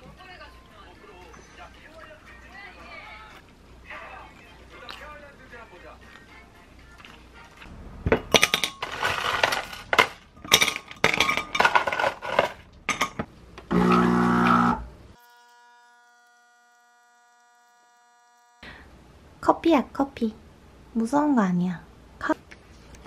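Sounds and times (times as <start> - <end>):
ice cubes clinking in glass: 8.3 - 13.2
coffee machine pump humming: 13.7 - 15.0.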